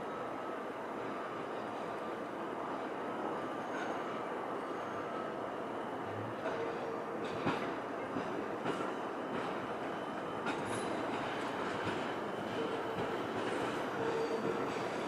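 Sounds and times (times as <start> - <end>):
train wheels rumbling on rails: 6.0 - 15.0.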